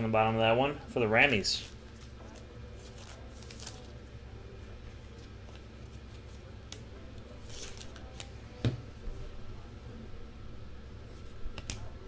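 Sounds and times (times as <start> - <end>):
low steady hum: 0.0 - 12.0
cards clicking and rustling: 7.4 - 8.3.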